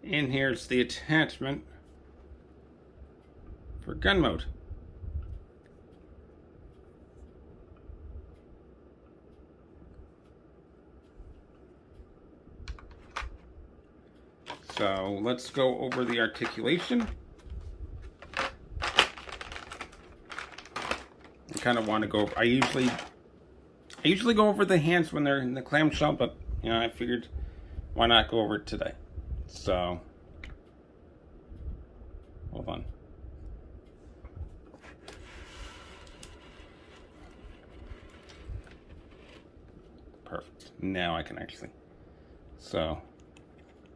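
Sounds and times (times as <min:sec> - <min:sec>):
soft rustle: 0:33.9 - 0:40.0.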